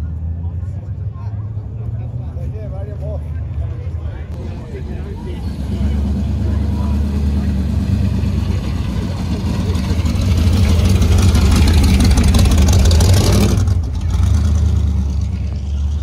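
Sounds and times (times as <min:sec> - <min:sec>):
car engine running: 0:04.2 - 0:16.0.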